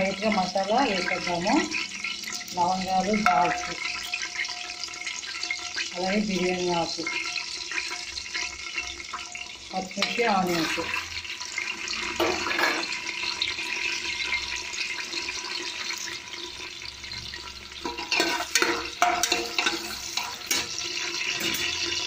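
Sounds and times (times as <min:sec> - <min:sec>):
vegetables sizzling in hot oil: 0:00.0 - 0:22.0
stirring knocks and scrapes in pan: 0:17.8 - 0:22.0.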